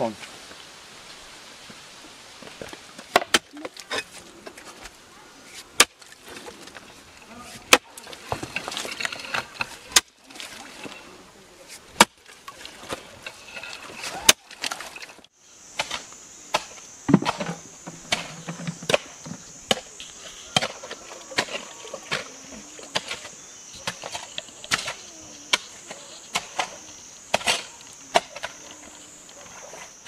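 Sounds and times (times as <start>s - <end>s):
digging tool striking earth and stones: 3.0s - 4.2s, 5.6s - 6.1s, 7.4s - 10.2s, 11.7s - 12.2s, 14.0s - 28.6s
high insect drone: 14.9s - 30.0s.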